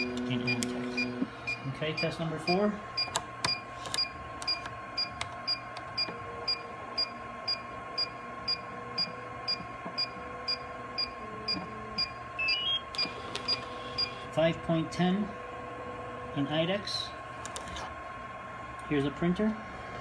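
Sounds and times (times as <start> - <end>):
short high electronic beeps: 12.0 - 13.1.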